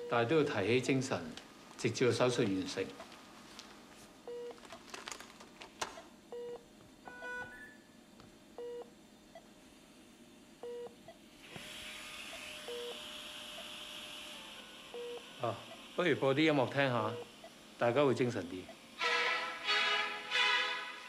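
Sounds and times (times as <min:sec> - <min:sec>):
patient monitor beeping: 0:00.0 - 0:00.9, 0:06.3 - 0:07.9, 0:12.4 - 0:13.0, 0:14.9 - 0:15.9, 0:17.0 - 0:17.6
steady hiss: 0:11.2 - 0:21.0.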